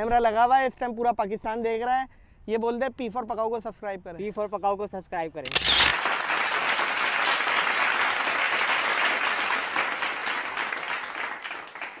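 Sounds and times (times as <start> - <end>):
applause: 5.9 - 12.0.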